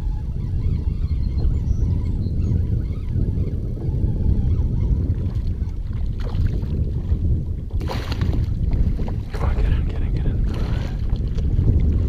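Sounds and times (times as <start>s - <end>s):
wind buffeting microphone: 0.0s - 12.0s
water splash: 7.8s - 8.5s.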